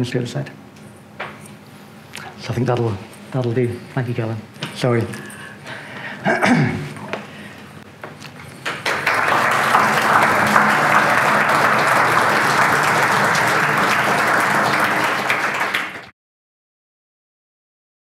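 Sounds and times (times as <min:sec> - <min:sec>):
audience applauding: 0:08.6 - 0:16.1.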